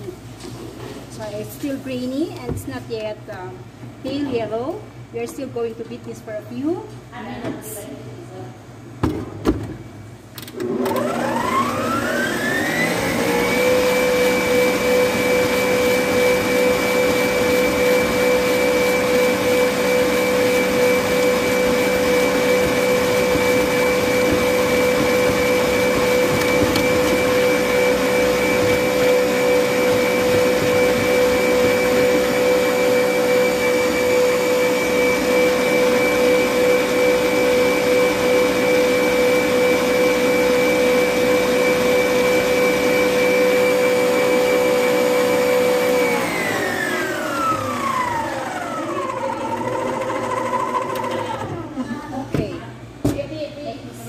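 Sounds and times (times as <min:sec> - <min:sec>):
electric stand mixer whining: 0:10.5 - 0:52.0
whisk beating in steel bowl: 0:13.8 - 0:36.0.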